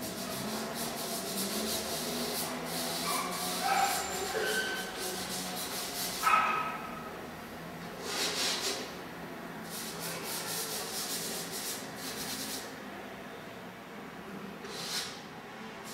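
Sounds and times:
drawing strokes scraping on canvas: 0.0s - 6.4s.

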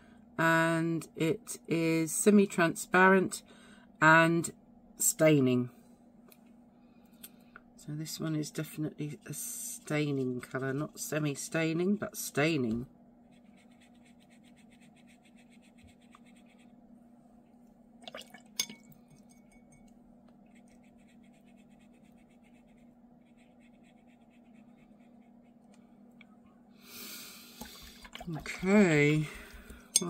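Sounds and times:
brush scratching on paper: 13.2s - 16.8s, 20.5s - 25.7s
brush rinsed in water: 18.0s - 19.3s, 27.6s - 29.8s.

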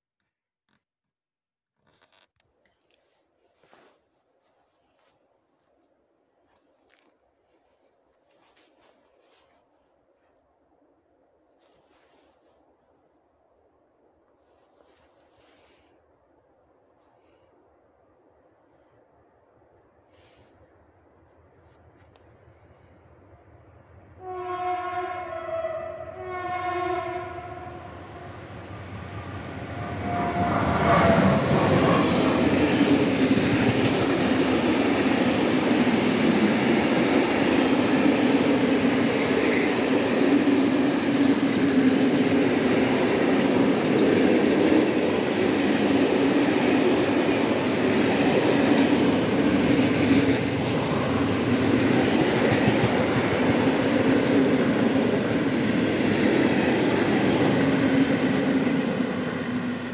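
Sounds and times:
locomotive horn blasts: 24.2s - 28.3s, 29.8s - 30.8s
train wheels rumbling and clattering: 28.6s - 59.9s.

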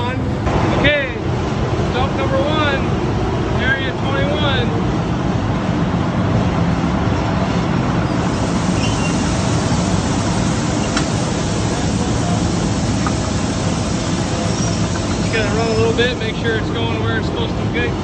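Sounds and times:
machinery hum: 4.8s - 18.0s.

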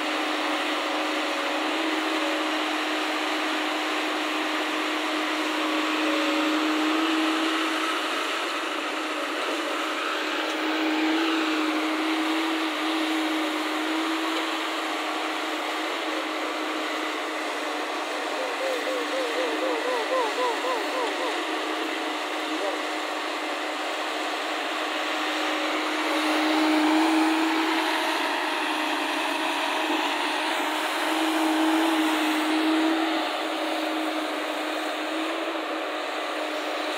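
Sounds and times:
excavator engine and hydraulics: 0.0s - 36.9s
humming whine: 0.0s - 36.9s.

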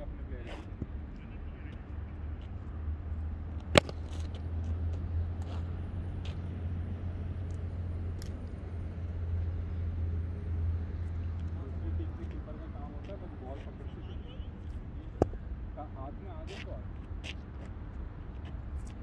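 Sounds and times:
cricket bat striking ball: 3.5s - 4.5s, 15.1s - 15.5s.

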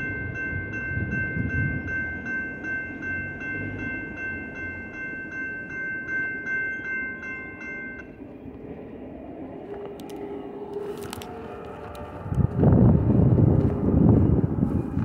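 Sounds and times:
railroad crossing bell ringing: 0.0s - 8.4s
low rumble of departing train: 0.0s - 15.0s.

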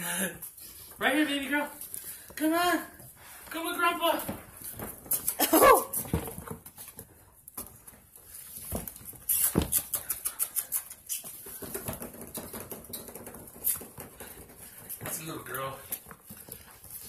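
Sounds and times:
puppy claws pattering on hard floor: 4.2s - 17.0s.

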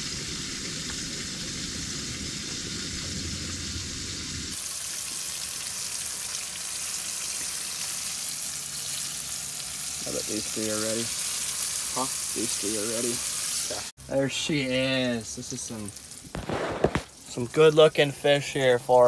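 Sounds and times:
fish frying in hot oil: 0.0s - 19.0s
low rumble: 1.1s - 4.5s.

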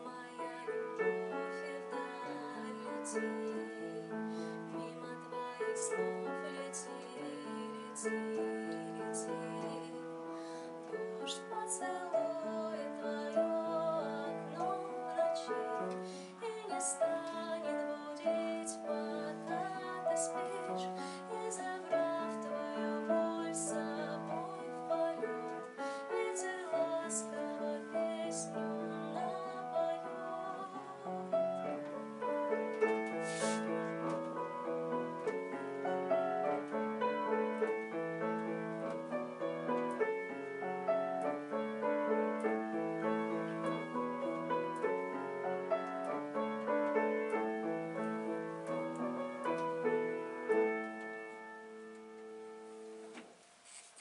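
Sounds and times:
slow piano piece: 0.0s - 54.0s.

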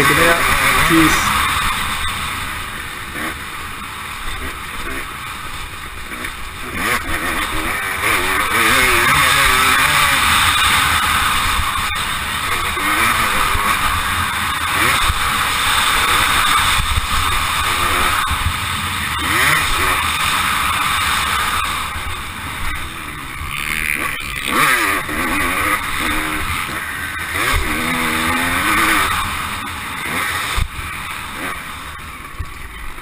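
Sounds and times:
dirt bike engine revving: 0.0s - 33.0s.

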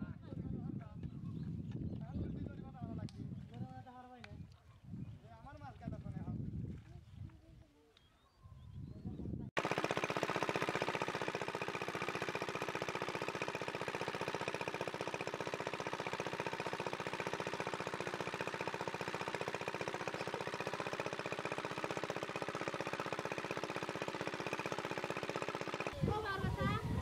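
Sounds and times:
small engine running: 9.6s - 27.0s.

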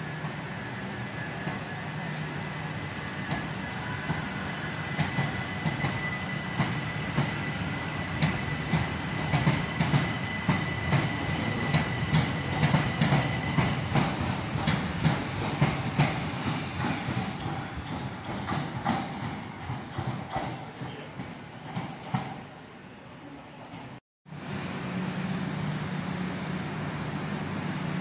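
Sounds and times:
train wheels clicking over rail joints: 8.2s - 22.5s.

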